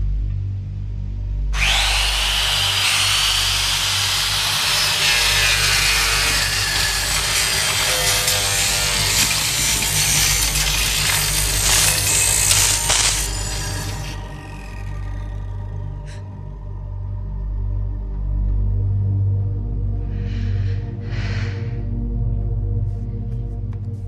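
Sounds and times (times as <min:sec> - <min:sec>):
low musical drone: 0:00.0 - 0:24.0
circular saw blade whining: 0:01.6 - 0:16.6.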